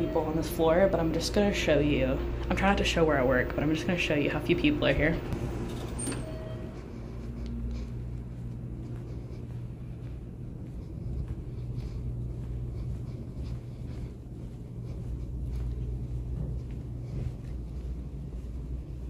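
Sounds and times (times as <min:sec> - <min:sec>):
footsteps on carpet: 0:00.0 - 0:19.0
steady low rumble: 0:00.0 - 0:19.0.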